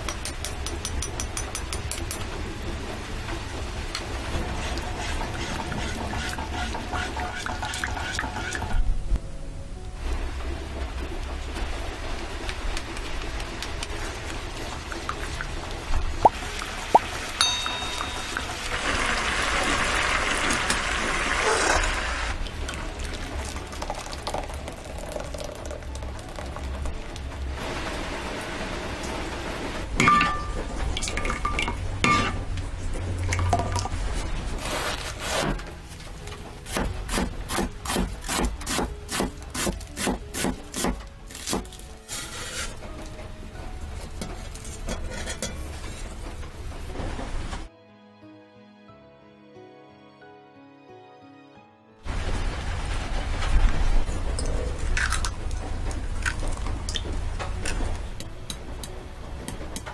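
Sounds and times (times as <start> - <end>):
spatula stirring: 4.5 - 8.8, 34.6 - 42.8
sauce bubbling and sizzling in a pan: 11.5 - 29.0
knife cutting lettuce: 34.6 - 35.6, 36.6 - 42.8.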